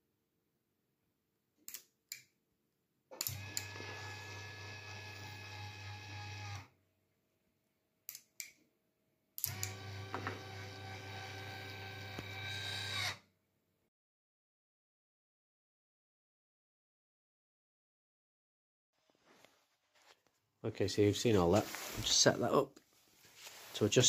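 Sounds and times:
actuator motor hum and whine: 3.3 - 6.7, 9.5 - 13.2.

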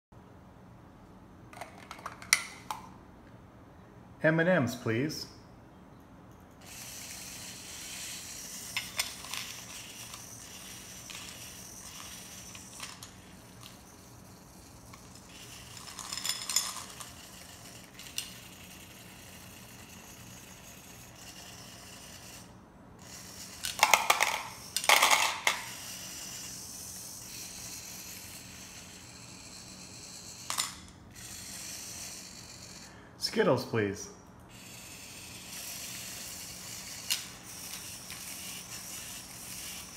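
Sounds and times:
candy rattling in glass bowl: 8.8 - 20.2.

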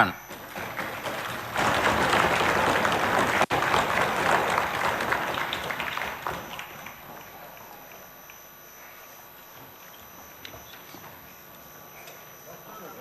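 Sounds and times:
crowd applauding: 0.3 - 8.3.

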